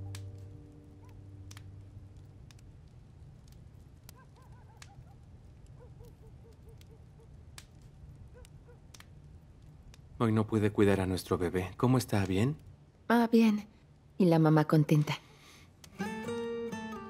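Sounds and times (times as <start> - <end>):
background music: 0.0 - 2.0, 15.9 - 17.0
faint clicks: 0.1 - 10.1.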